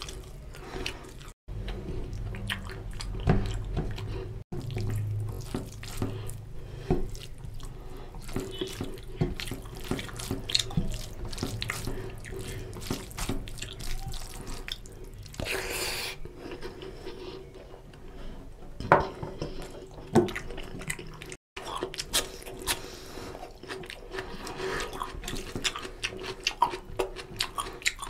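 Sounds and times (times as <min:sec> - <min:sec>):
fingers mixing wet rice: 0:04.6 - 0:15.6.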